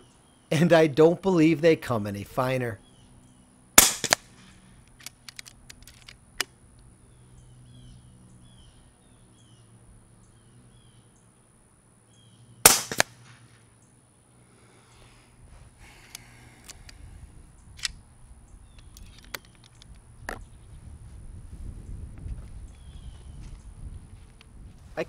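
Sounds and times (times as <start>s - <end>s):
air rifle shots: 3.8s - 5.2s, 12.6s - 13.6s.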